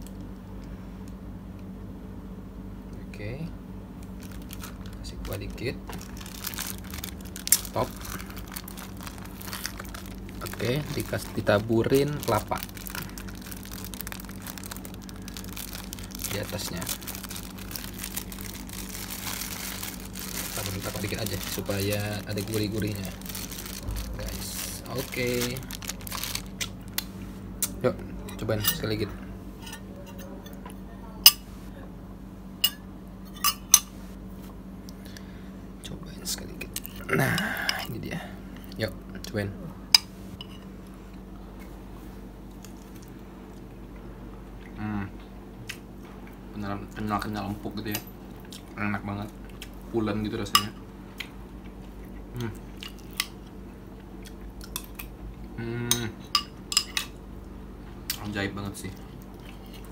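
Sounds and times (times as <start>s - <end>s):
person chewing: 5.9s - 11.4s, 12.3s - 27.8s, 51.2s - 55.1s, 59.0s - 59.9s.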